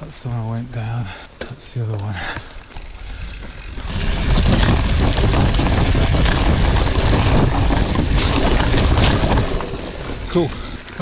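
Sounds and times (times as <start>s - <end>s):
bike knocks and rattles: 2.6s - 11.0s
wind buffeting microphone: 2.8s - 11.0s
tyre rumble on dirt: 3.5s - 11.0s.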